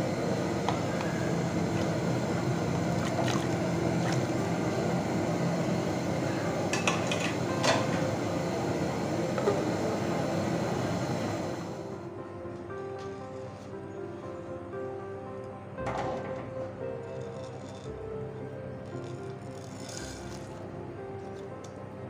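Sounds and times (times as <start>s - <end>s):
pot of water heating rushing: 0.0s - 12.0s.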